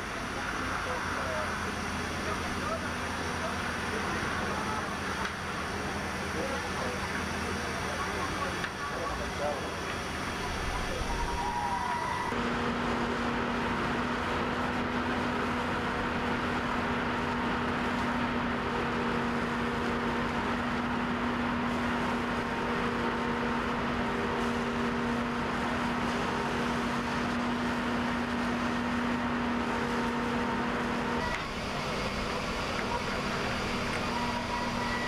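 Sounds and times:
machinery drone: 0.0s - 35.0s
hose spraying water on steel deck: 15.1s - 35.0s.

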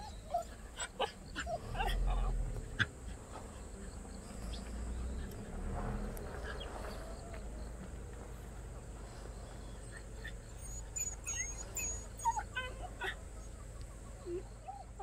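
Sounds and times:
dog whining: 0.0s - 2.9s, 9.6s - 15.0s.

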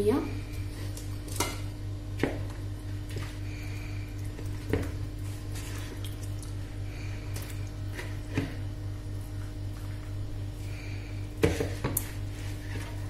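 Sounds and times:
steady low hum: 0.0s - 13.0s
wet squelching of meat: 3.0s - 8.4s.

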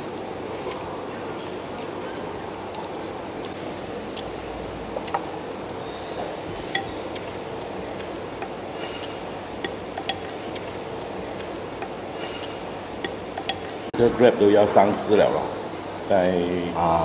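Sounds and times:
background hum: 0.0s - 17.0s
chopsticks clinking on bowl: 6.7s - 7.4s, 8.4s - 10.8s, 11.7s - 13.8s.

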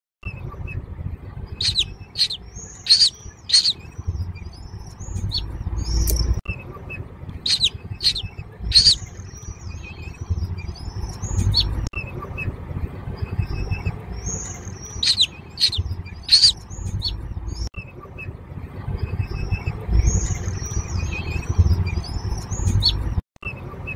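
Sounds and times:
low rumble: 0.2s - 23.9s
hawk chicks begging calls: 1.6s - 4.0s, 7.4s - 9.2s, 14.2s - 17.2s.

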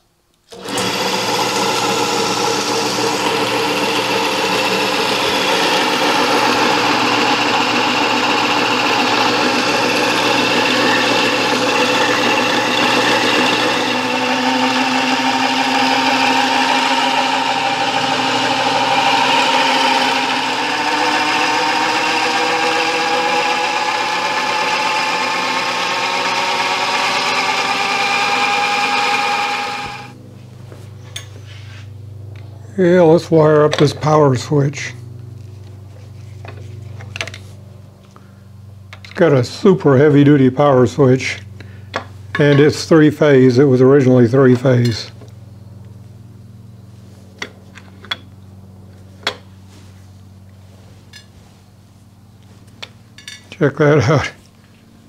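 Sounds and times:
drill press mechanical whine: 0.4s - 30.2s.

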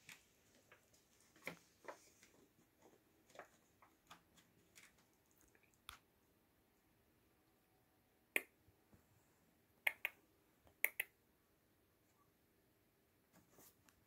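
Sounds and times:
kittens licking and grooming: 0.0s - 6.2s.

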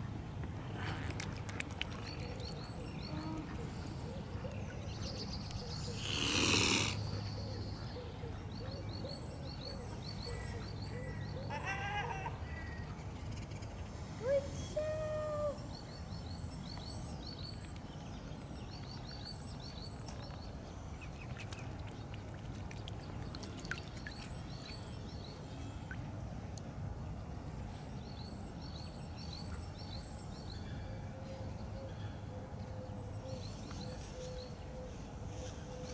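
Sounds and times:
songbirds chirping: 0.0s - 35.9s
water clicks and drips: 1.0s - 2.5s, 21.4s - 24.3s.

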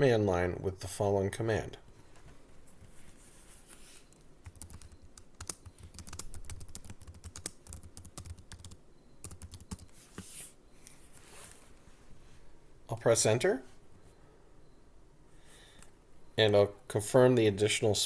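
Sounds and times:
computer keyboard typing: 4.4s - 10.4s.

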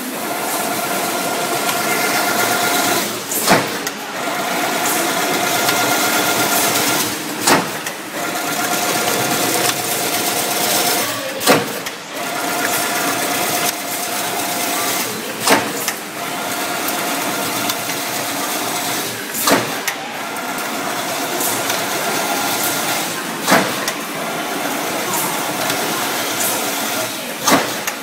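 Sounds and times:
machine clattering: 0.1s - 28.0s
loud machine clank: 1.6s - 4.0s, 4.7s - 10.4s.

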